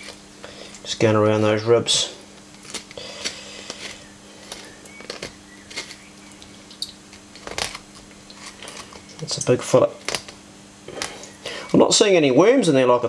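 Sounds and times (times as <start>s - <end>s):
steady low hum: 0.0s - 13.0s
knife scraping fish bones: 2.6s - 6.1s.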